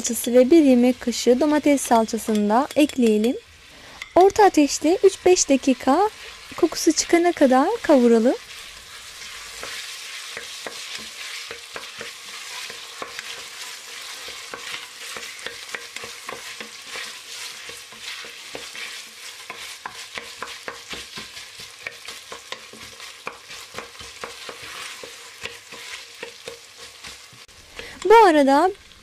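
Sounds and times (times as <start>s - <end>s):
vegetables sizzling in oil: 0.0s - 29.0s
spoon scraping metal pot: 1.6s - 4.5s.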